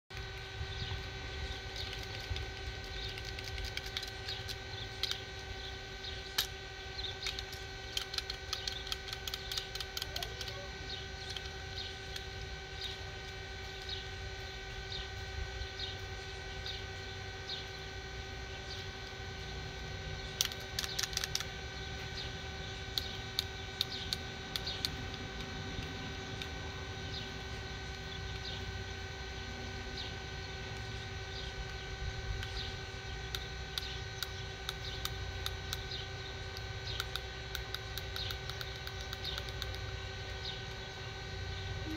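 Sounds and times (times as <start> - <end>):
steady hum: 0.1 - 41.9
fidget cube plastic clicks: 1.7 - 14.0, 20.3 - 21.6, 22.9 - 26.6, 30.7 - 40.8.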